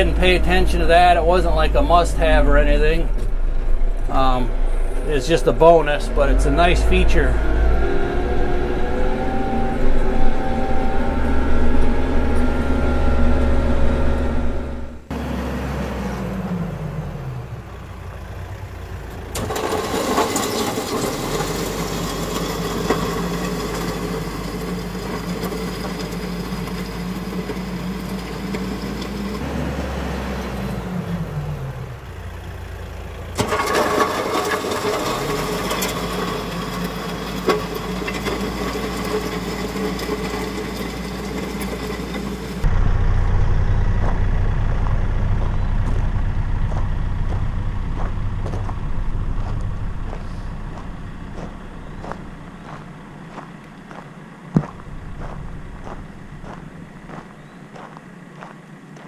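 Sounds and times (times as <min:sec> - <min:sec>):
tractor diesel engine running: 0:00.0 - 0:59.0.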